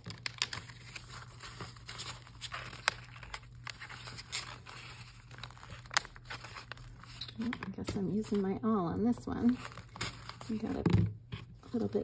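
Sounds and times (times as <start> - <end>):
paper rustling: 0.0 - 8.6.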